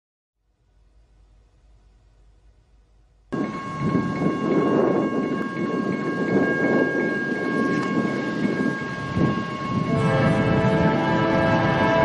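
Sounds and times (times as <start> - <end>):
train rumbling: 0.6 - 12.0
train horn two-note blast: 9.2 - 12.0.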